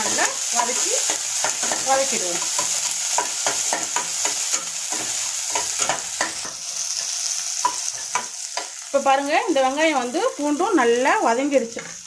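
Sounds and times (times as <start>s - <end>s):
spatula scraping and tapping pan: 0.0s - 8.8s
shallots and garlic sizzling in oil: 0.0s - 12.0s.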